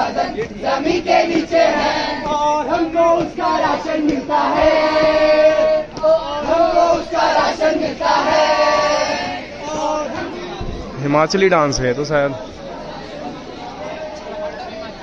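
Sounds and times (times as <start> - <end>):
group of voices singing: 0.0 - 10.9.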